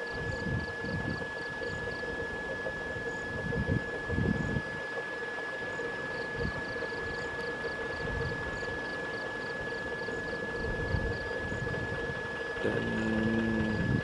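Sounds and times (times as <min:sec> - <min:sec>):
faint rapid chirping: 0:12.4 - 0:14.0
low hum: 0:12.6 - 0:14.0
wind on microphone: 0:12.6 - 0:14.0.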